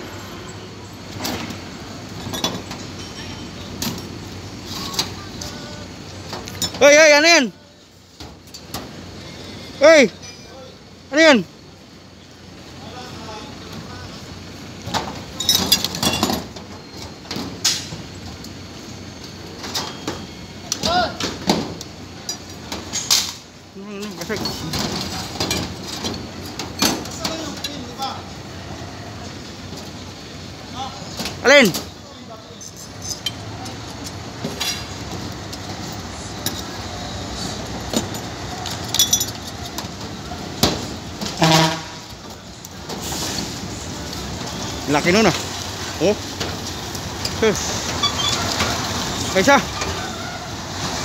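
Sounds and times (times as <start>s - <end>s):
street traffic hum: 0.0s - 51.0s
ringing metallic clinks: 10.2s - 10.7s, 38.0s - 39.7s
metal tools clinking in a bucket: 15.4s - 17.1s, 32.5s - 35.0s, 37.9s - 39.8s.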